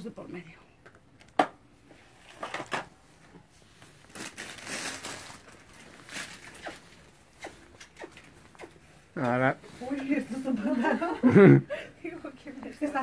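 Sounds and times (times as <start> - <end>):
straw rustling and crunching: 4.0 - 6.9.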